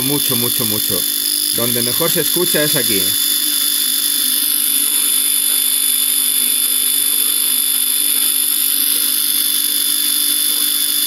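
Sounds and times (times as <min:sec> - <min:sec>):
radio static hiss: 0:00.0 - 0:03.4.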